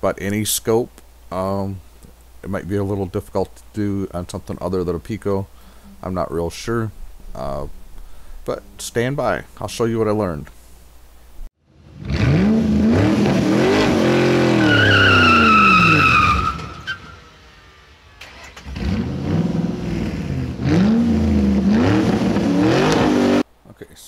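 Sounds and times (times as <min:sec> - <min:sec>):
car engine revving: 0:11.7 - 0:23.4
tires squealing: 0:12.0 - 0:17.4.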